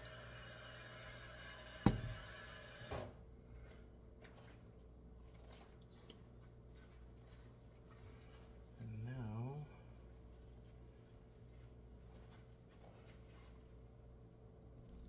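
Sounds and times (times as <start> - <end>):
frying pan clunking on stove: 1.9 - 2.2.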